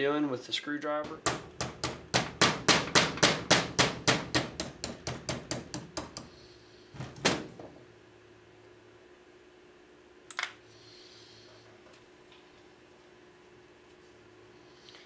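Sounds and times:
hammer tapping metal punch: 1.0s - 6.3s.

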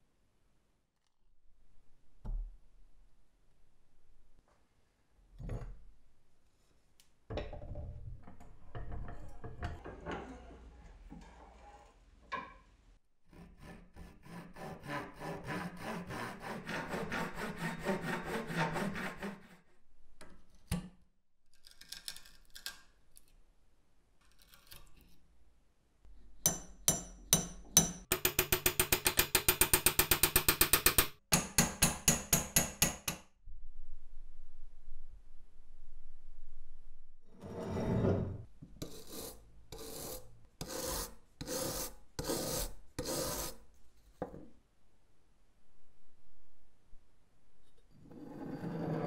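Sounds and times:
scraping and prying strokes: 38.8s - 43.7s.

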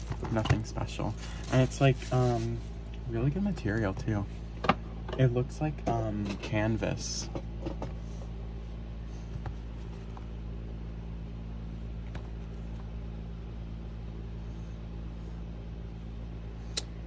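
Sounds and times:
rustling of cardboard album: 0.0s - 4.2s
steady low hum: 0.0s - 17.0s.

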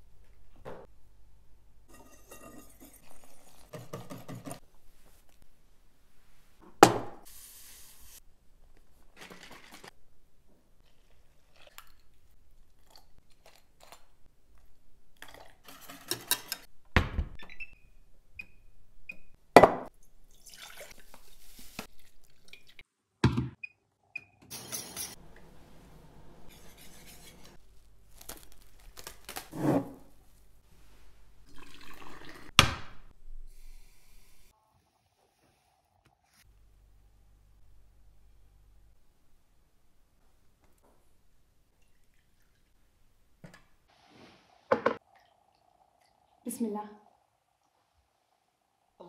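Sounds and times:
utensils clanking on cookware: 1.9s - 4.6s, 24.5s - 25.2s
pouring into pots: 9.1s - 10.0s, 20.3s - 22.8s, 31.4s - 32.5s.

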